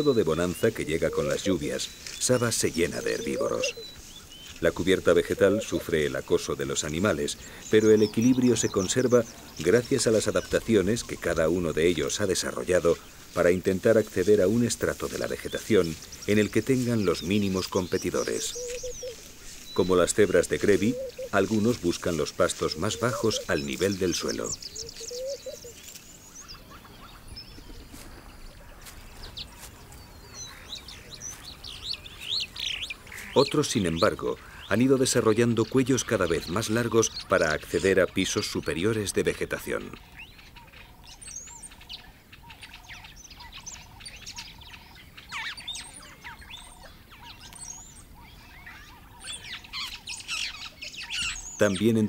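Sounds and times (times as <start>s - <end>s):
low warbling bird call: 0.0s - 34.8s
birds chirping and whistling: 0.0s - 52.0s
faint outdoor hiss: 0.0s - 52.0s.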